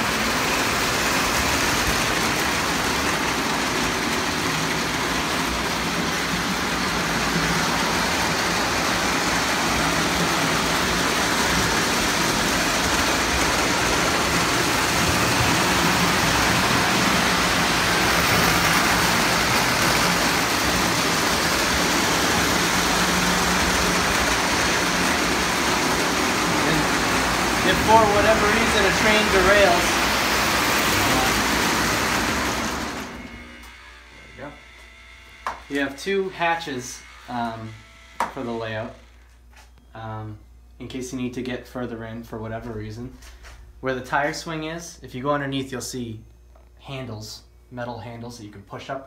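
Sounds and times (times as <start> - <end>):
model train rolling: 0.0 - 33.6.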